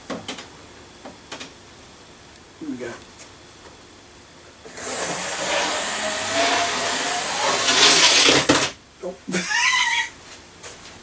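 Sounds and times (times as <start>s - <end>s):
model train motor whirring: 4.7s - 8.5s.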